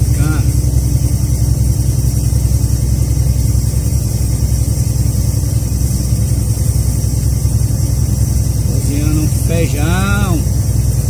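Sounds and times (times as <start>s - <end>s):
pressure cooker hissing steam: 0.0s - 11.0s
truck engine and road rumble: 0.0s - 11.0s.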